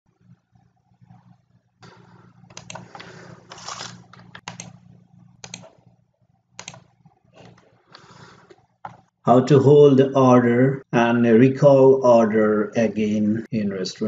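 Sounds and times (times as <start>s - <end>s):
low steady hum: 0.1s - 14.0s
keyboard typing: 1.9s - 5.9s, 6.6s - 7.6s.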